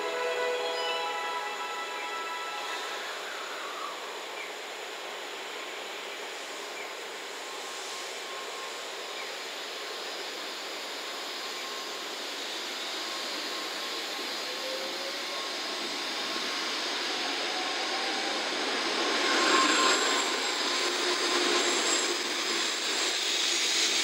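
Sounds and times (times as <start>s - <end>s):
faint train motor whine: 0.0s - 16.3s.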